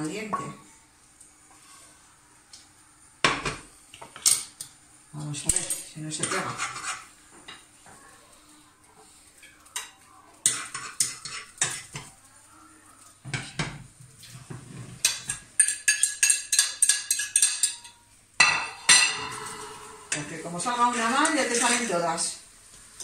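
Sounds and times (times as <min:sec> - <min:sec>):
utensil clinking on plate: 0:15.1 - 0:19.6.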